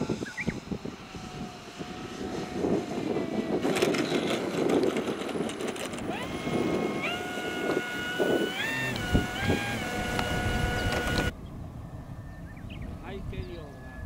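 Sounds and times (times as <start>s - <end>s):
model airplane motor whine: 0.0s - 11.3s
wheels rumbling across turf: 0.8s - 6.8s.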